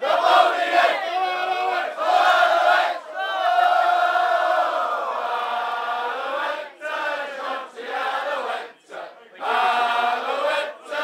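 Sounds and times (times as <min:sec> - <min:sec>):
group of men singing: 0:04.6 - 0:11.0.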